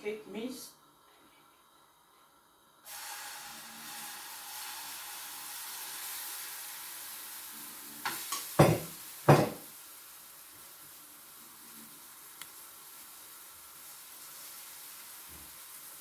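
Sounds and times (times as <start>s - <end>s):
batter sizzling in oil: 2.8s - 16.0s
utensil knocking against pan: 8.6s - 9.6s.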